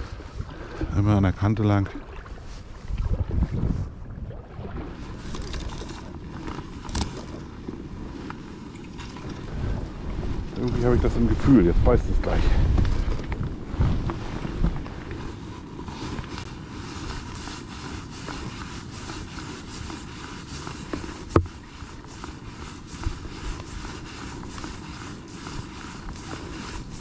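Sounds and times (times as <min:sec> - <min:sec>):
wind and water rumble: 0:00.0 - 0:27.0
fly line rustling through guides: 0:05.0 - 0:12.2, 0:12.8 - 0:27.0.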